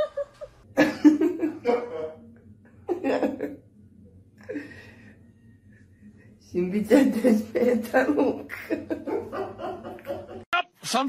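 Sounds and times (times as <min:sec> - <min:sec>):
person laughing: 0:08.5 - 0:10.5.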